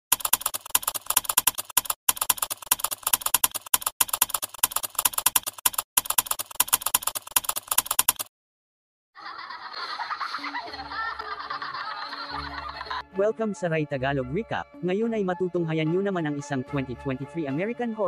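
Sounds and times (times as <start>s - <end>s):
keyboard typing clicks: 0.1s - 8.3s.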